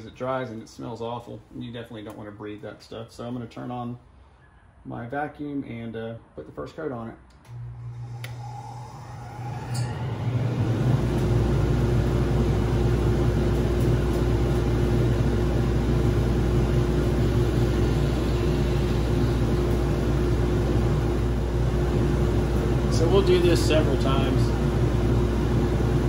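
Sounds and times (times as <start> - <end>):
workshop vacuum running: 7.3 - 26.0.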